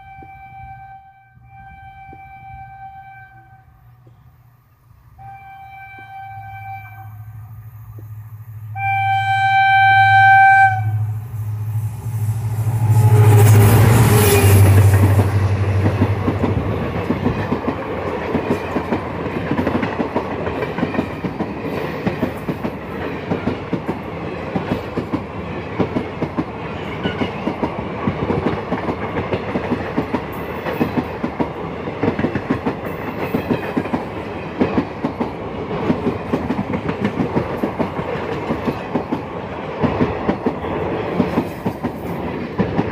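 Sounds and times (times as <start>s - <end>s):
locomotive horn: 0.0s - 3.8s, 5.2s - 7.4s, 8.7s - 11.3s, 12.4s - 15.8s
locomotive engine passing: 6.4s - 42.9s
train coaches clickety-clack: 11.8s - 42.9s.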